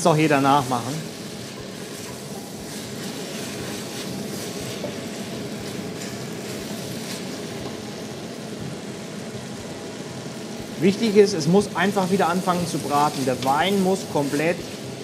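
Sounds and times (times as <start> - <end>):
vegetables sizzling in a pot: 0.0 - 15.0
wooden spoon stirring: 0.4 - 8.1, 10.9 - 15.0.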